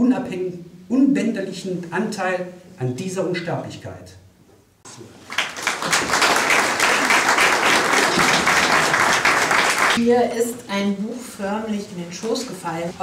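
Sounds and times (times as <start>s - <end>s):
audience applauding: 5.2s - 10.0s.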